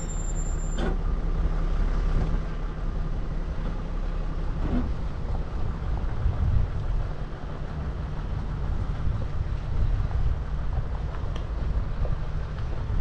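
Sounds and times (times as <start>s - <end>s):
vehicle engine droning: 0.0s - 13.0s
wind noise on microphone: 4.5s - 13.0s.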